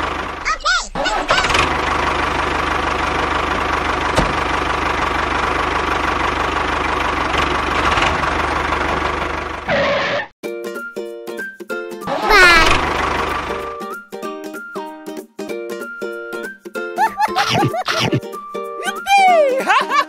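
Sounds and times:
tractor engine chugging: 0.0 - 9.7, 12.7 - 13.7.

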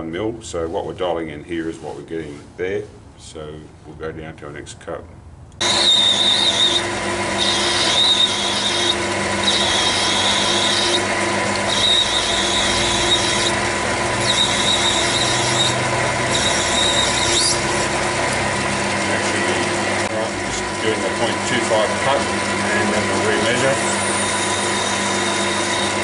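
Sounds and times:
cutting tool squealing: 5.6 - 17.8, 22.8 - 26.0
metal lathe humming: 5.6 - 26.0.

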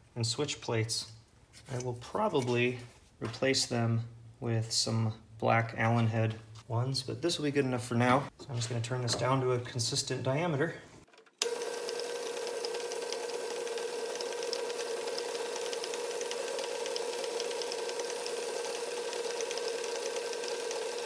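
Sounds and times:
metal lathe whining: 11.4 - 21.0.

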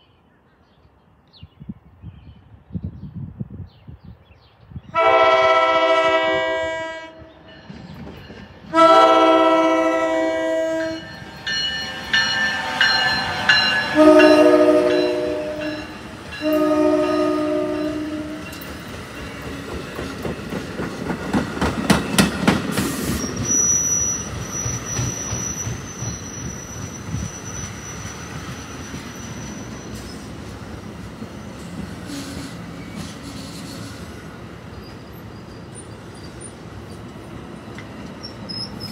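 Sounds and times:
train air horn blasts: 4.9 - 7.4, 8.7 - 11.2, 13.7 - 18.5, 32.1 - 34.0
train wheel clatter: 7.6 - 8.6, 18.4 - 30.6
high squeal of train brakes: 22.8 - 30.4, 31.4 - 37.0, 37.6 - 38.9.

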